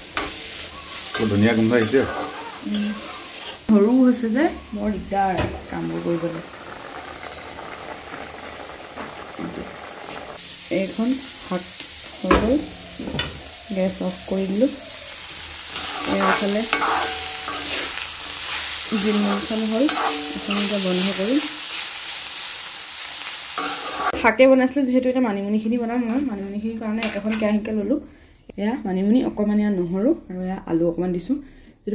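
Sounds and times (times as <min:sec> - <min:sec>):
metal spatula scraping a pan: 0:00.0 - 0:03.7, 0:12.0 - 0:22.2, 0:23.5 - 0:24.2, 0:27.0 - 0:27.6
greens sizzling in oil: 0:00.0 - 0:31.3.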